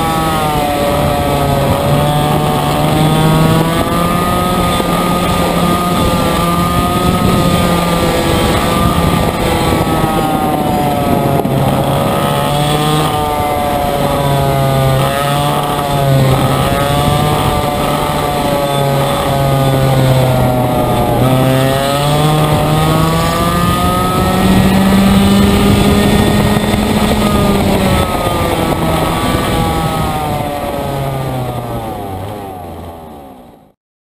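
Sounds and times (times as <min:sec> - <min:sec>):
racing kart engine: 0:00.0 - 0:33.8.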